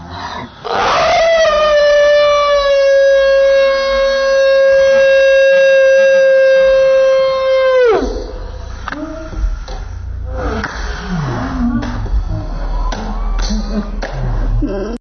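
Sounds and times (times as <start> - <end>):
person screaming: 0.7 - 9.4.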